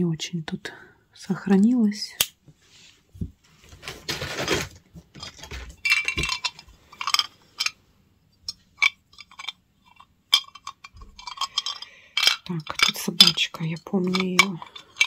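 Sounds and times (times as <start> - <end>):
metal and glass pieces clinking: 5.2 - 7.8, 8.4 - 15.0.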